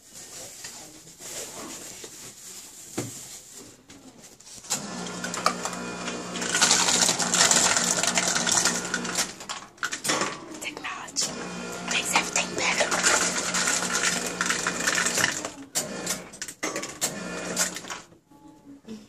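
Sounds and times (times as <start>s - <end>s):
ice dispenser motor hum: 4.7s - 10.3s, 10.9s - 18.1s
ice clattering into cup: 5.1s - 11.0s, 11.9s - 18.1s.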